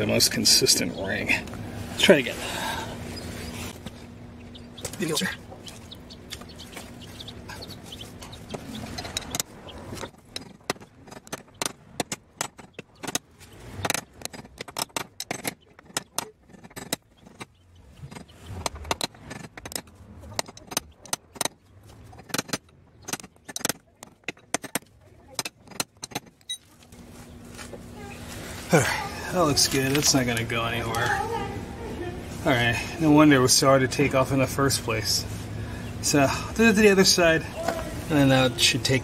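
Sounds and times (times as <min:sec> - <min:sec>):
metallic tapping: 0:04.4 - 0:26.5.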